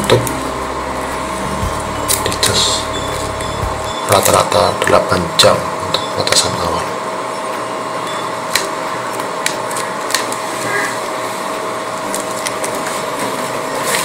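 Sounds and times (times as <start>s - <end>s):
steady hum with faint tone: 0.0s - 13.8s
plastic film crinkling: 8.6s - 14.0s.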